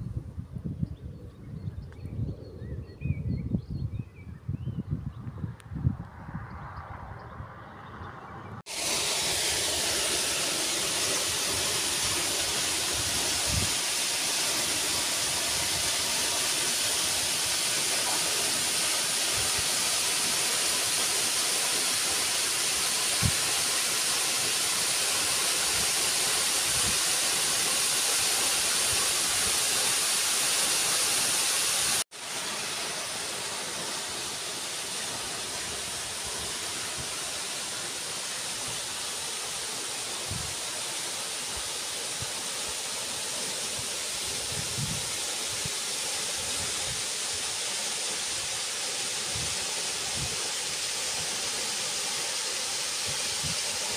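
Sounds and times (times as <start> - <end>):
softer steady water sound: 8.6 - 53.9
waterfall pouring into pool: 8.6 - 53.9.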